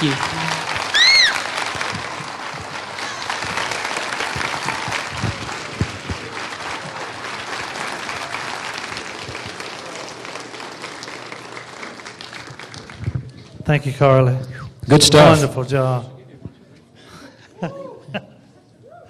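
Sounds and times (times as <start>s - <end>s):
audience applauding: 0.0s - 13.6s.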